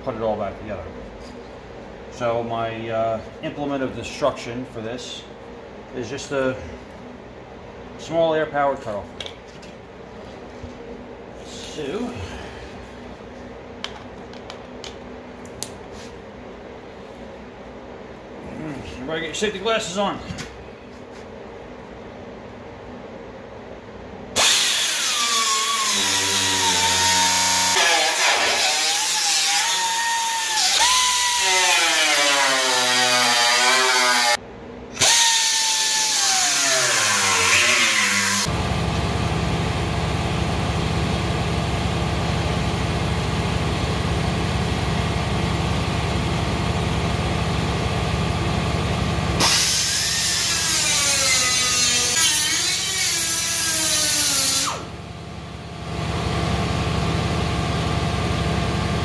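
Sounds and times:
low mechanical running noise: 0:00.0 - 0:27.8, 0:34.4 - 0:36.1, 0:38.3 - 0:59.0
air cutoff tool whining: 0:24.4 - 0:59.0.

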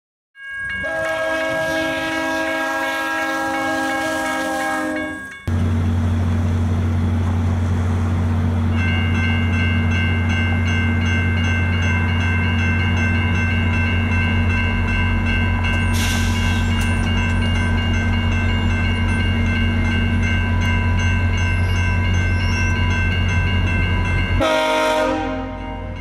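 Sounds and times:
crossing warning bell ringing: 0:00.4 - 0:06.0, 0:08.1 - 0:26.0
train horn chord: 0:00.8 - 0:05.2, 0:24.4 - 0:26.0.

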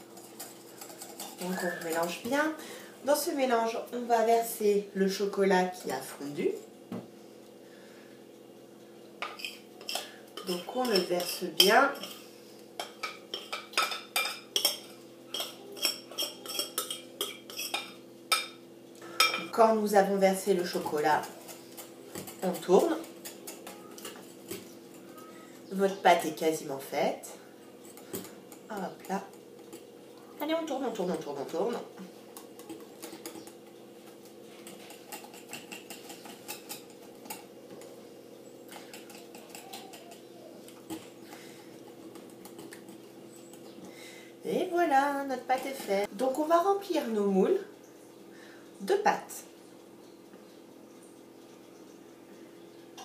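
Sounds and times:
utensil scraping glass bowl: 0:00.0 - 0:02.4, 0:14.2 - 0:18.0.

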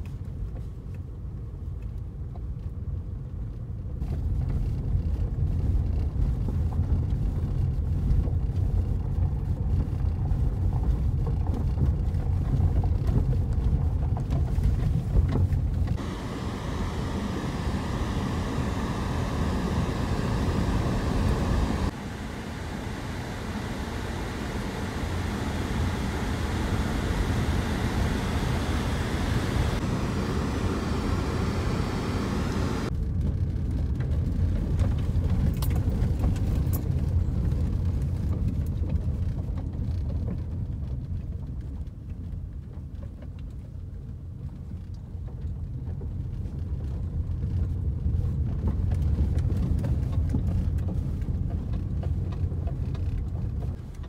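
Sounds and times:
car engine and tyre rumble: 0:00.0 - 0:54.0
hiss: 0:16.0 - 0:32.9.

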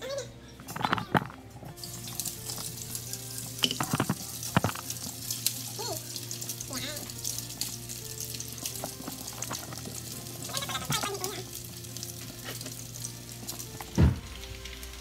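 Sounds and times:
patties frying in hot oil: 0:01.4 - 0:15.0
loud thump: 0:14.0 - 0:14.3.

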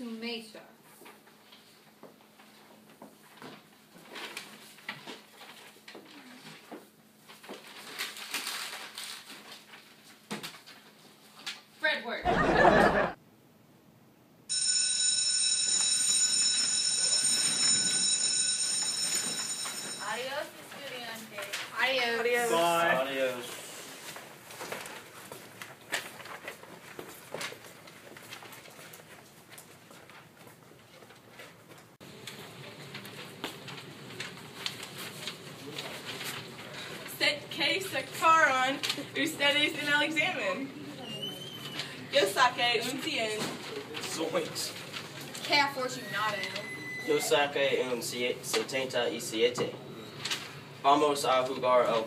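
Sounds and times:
low room hum: 0:00.0 - 0:14.5
electric school bell ringing: 0:14.5 - 0:20.6, 0:46.0 - 0:47.3.

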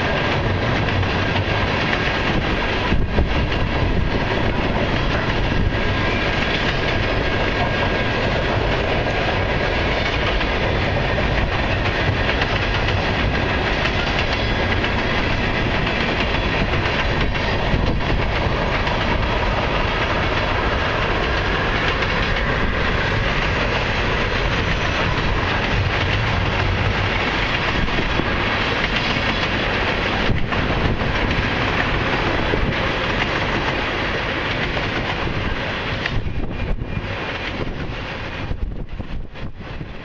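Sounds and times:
clickety-clack at rail joints: 0:00.0 - 0:40.0
freight train wheels rumbling: 0:00.0 - 0:40.0.

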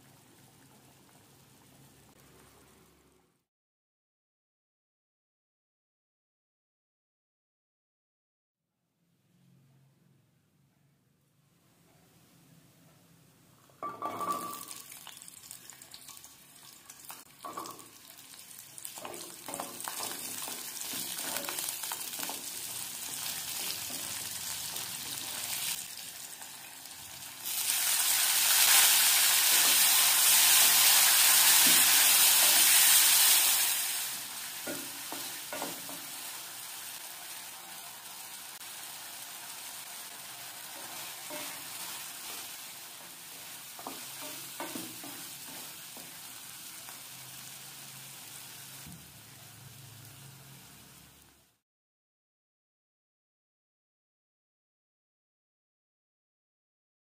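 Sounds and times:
shallots sizzling in oil: 0:13.8 - 0:51.6.

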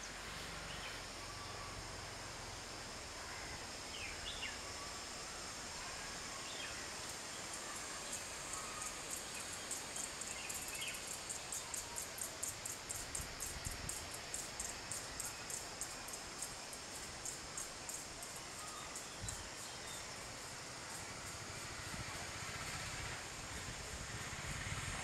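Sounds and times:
insect chirping: 0:00.0 - 0:25.0
soft outdoor hiss: 0:00.0 - 0:25.0.

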